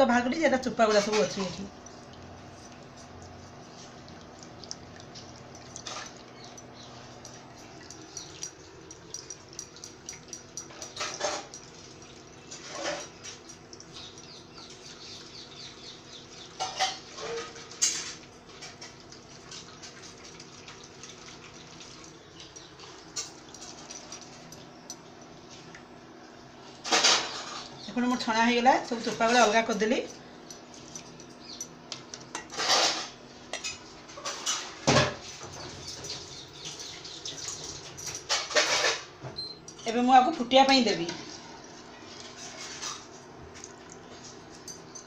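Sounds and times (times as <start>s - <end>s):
juice dripping into a pan: 1.2s - 12.6s.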